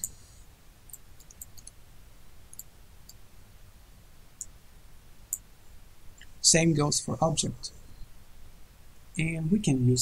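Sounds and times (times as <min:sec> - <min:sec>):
computer mouse clicks: 0:00.9 - 0:01.8, 0:02.5 - 0:03.2.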